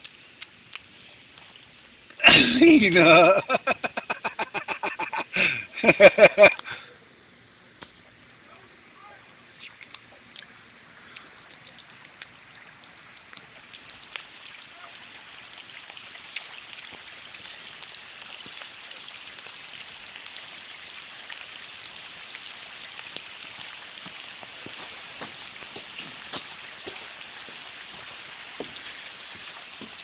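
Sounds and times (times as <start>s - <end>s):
rain on concrete and puddles: 0.0s - 6.8s, 9.3s - 30.0s.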